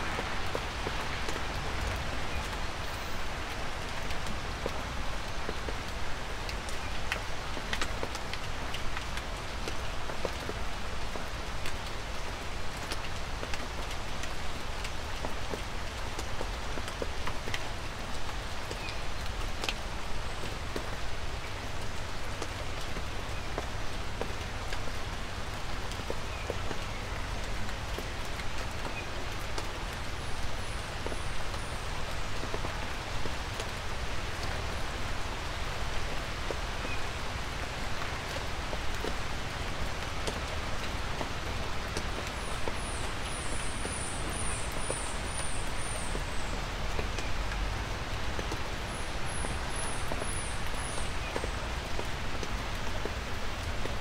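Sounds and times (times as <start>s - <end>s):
light rain falling: 0.0s - 54.0s.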